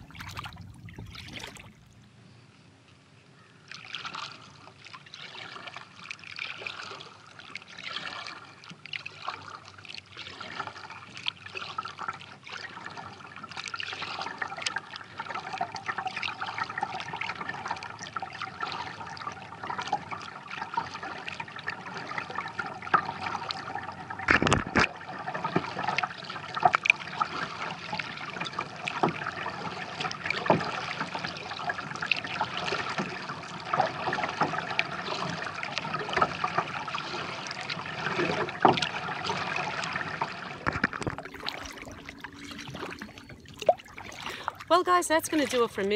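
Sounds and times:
water dripping off paddle: 0.0 - 2.0, 25.4 - 45.9
water splashing at hull: 0.0 - 2.1, 3.7 - 45.9.

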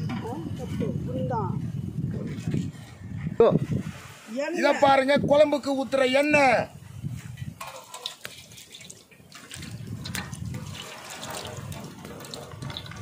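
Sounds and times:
oil trickling into metal pot: 7.6 - 13.0.

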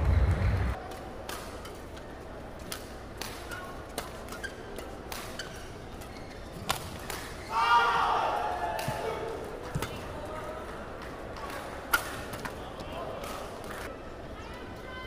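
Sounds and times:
low hall noise: 0.0 - 15.0
racket hitting shuttlecock: 2.7 - 5.7, 6.6 - 7.4
shoes squeaking on court: 3.5 - 7.5.

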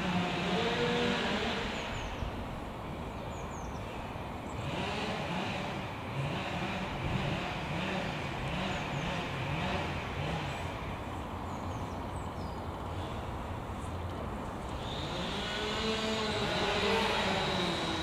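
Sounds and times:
hum of motor traffic: 0.0 - 18.0
vehicle rising in pitch: 14.7 - 18.0.

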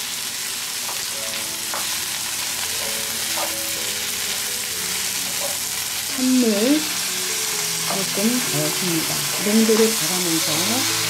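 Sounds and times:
food sizzling in a frying pan: 0.0 - 11.0
wooden utensils tapping a pan: 0.8 - 1.1, 1.7 - 2.0, 2.8 - 3.7, 5.3 - 5.6.

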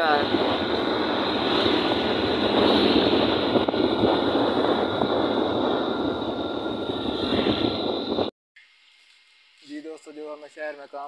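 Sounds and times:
road noise: 0.0 - 8.3
wind rush: 0.0 - 8.3.

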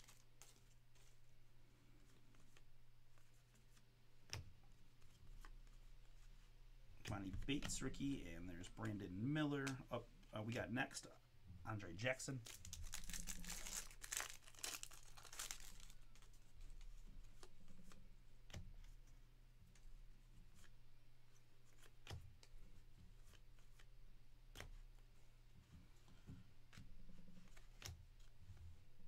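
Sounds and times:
wrappers crinkling and tearing: 0.0 - 1.2, 12.3 - 16.4
cards ticking and tapping: 7.0 - 10.6, 25.7 - 28.9.

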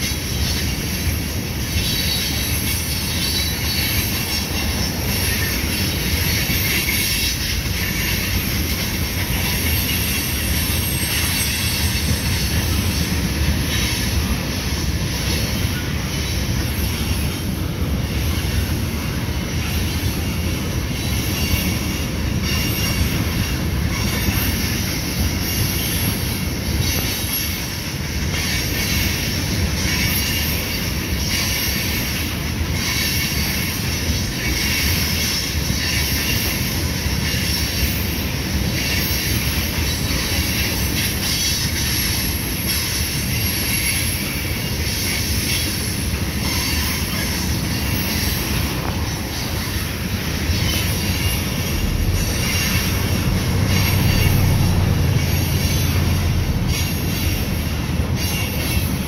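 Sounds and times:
train wheels rumbling on rail: 0.0 - 59.0
high-pitched wheel squeal: 38.8 - 59.0.

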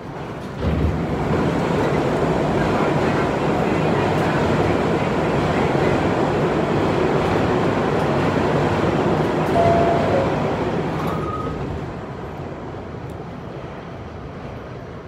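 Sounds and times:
subway car rumble and clatter: 0.0 - 15.0.

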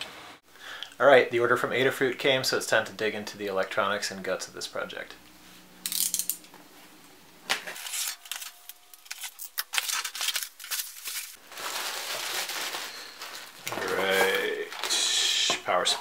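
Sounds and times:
tape and cardboard ripping: 7.5 - 11.4
bubble wrap crinkling: 7.8 - 15.0.

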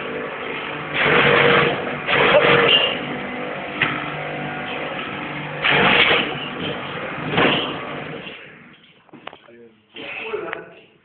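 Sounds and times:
pressure washer motor hum: 0.0 - 8.7.

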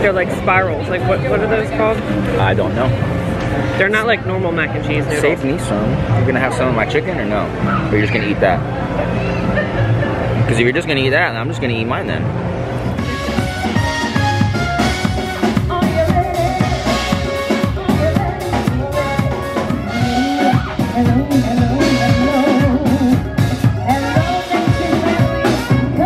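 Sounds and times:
keyboard: 0.0 - 26.0
drum kit: 12.9 - 26.0
trumpet: 13.0 - 15.6, 18.9 - 23.2, 23.9 - 26.0
person singing: 15.2 - 26.0.

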